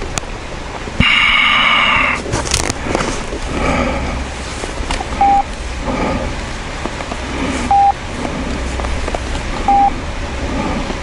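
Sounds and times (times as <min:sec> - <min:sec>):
low rumble: 0:00.0 - 0:11.0
short electronic beeps: 0:05.2 - 0:05.5, 0:07.7 - 0:08.0, 0:09.7 - 0:09.9.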